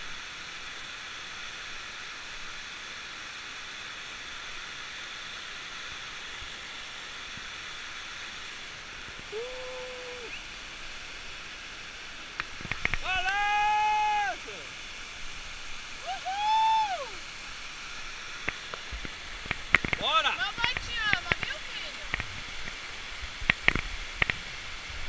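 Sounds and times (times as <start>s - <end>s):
waterfall rushing: 0.0s - 25.0s
held vocal call: 9.3s - 10.4s.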